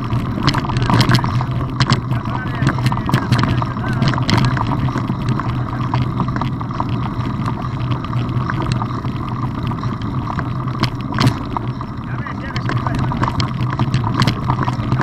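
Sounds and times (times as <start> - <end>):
bike tyres rumbling on gravel: 0.0 - 15.0
stones clicking and rattling: 0.0 - 15.0.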